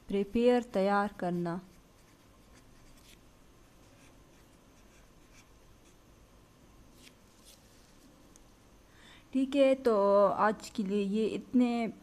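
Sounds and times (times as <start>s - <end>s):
pen scratching on paper: 1.3s - 6.0s.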